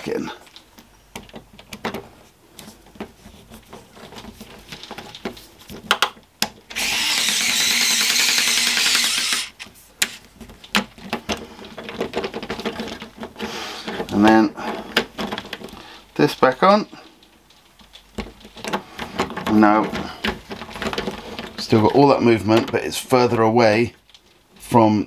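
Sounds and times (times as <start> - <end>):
cordless screwdriver driving screw: 6.7 - 9.7.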